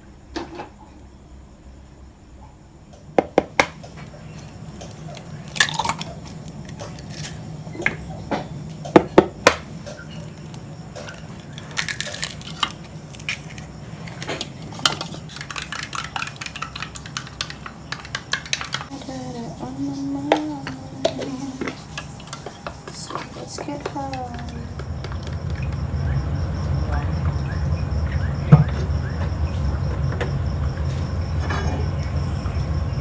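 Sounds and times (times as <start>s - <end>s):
wooden spoon beating eggs in jug: 14.6s - 25.8s.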